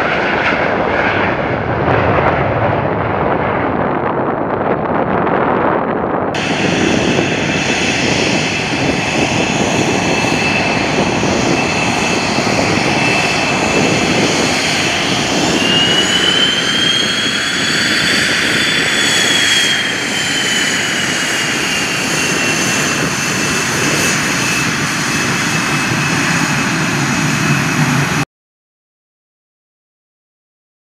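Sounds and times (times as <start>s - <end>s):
jet engines whining: 0.0s - 28.2s.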